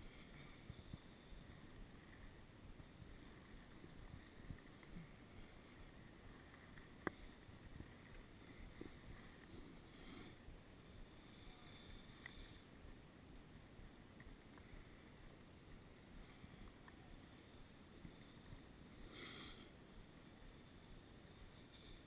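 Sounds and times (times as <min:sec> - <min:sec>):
skis sliding over snow: 0:00.0 - 0:12.7, 0:14.3 - 0:22.0
light hiss: 0:13.9 - 0:22.0.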